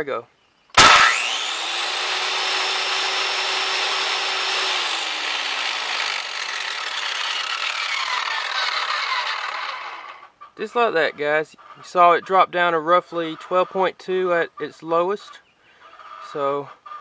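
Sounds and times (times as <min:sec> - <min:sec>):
circular saw winding down: 0:00.8 - 0:10.2.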